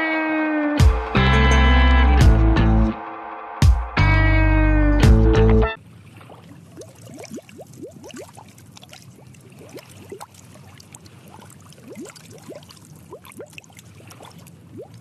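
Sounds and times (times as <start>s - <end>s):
bubbles gurgling underwater: 6.7s - 8.5s, 9.1s - 15.0s.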